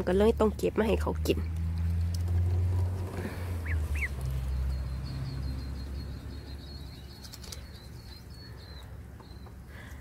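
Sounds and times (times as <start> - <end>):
duckling peeping: 2.9 - 10.0
faint high chirping: 3.6 - 10.0.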